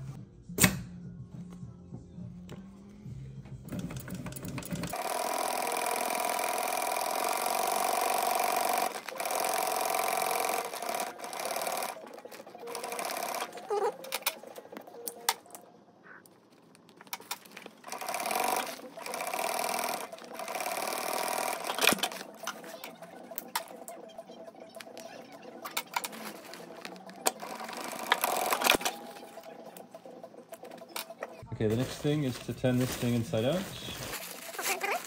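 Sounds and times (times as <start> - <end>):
sewing machine stitching: 3.7 - 14.3, 17.2 - 23.8, 25.6 - 29.8.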